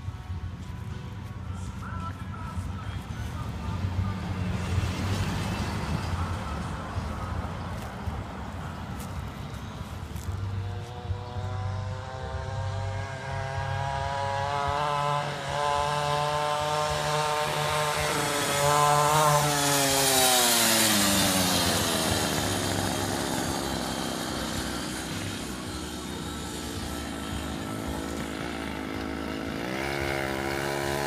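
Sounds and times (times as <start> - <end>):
small motorbike engine revving: 9.0 - 31.0.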